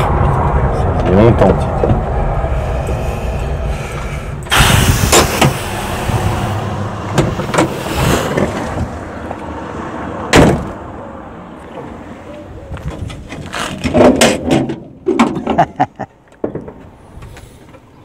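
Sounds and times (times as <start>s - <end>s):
car engine idling: 0.0s - 9.8s
car door shutting: 4.4s - 8.9s.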